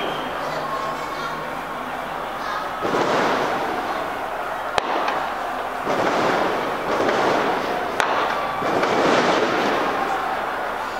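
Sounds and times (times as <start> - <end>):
crowd cheering and yelling: 0.0 - 10.9
firecracker bangs: 2.7 - 10.9.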